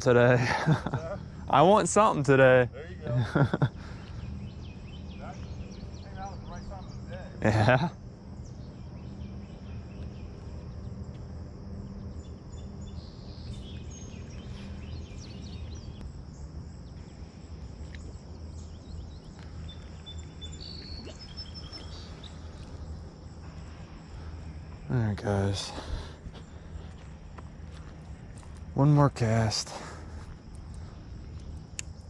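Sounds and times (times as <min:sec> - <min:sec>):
high insect drone: 0:00.0 - 0:32.0
low steady hum: 0:00.0 - 0:32.0
short bird chirps: 0:19.6 - 0:22.8.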